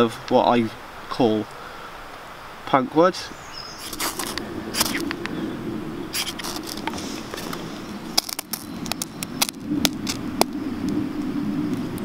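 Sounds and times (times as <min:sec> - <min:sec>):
steady low hum: 0:03.3 - 0:12.0.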